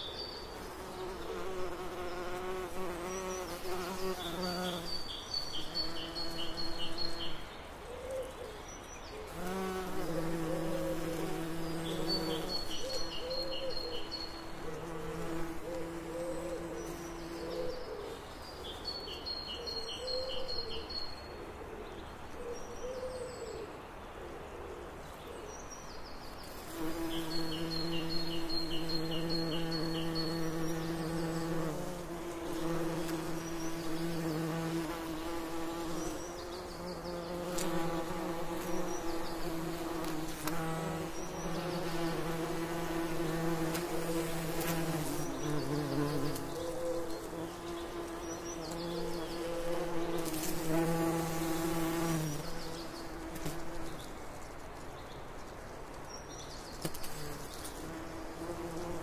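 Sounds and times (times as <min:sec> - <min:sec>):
bees buzzing: 0:00.6 - 0:07.4, 0:09.3 - 0:17.4, 0:26.6 - 0:54.0.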